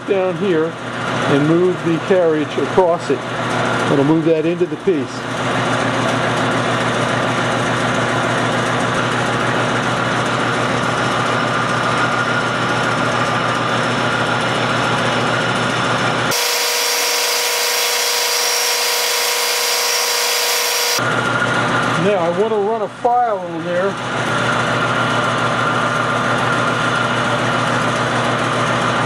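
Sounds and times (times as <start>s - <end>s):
metal lathe cutting: 16.3s - 21.0s.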